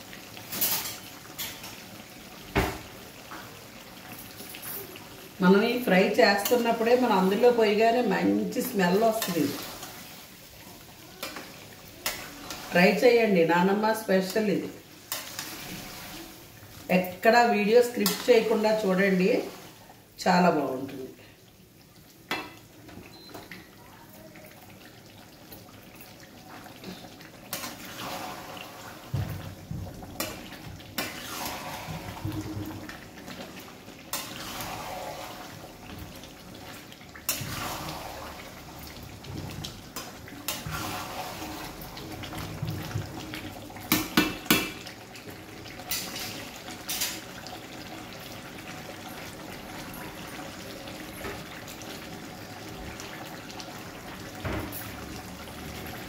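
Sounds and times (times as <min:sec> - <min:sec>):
gravy bubbling and sizzling: 0:00.0 - 0:56.0.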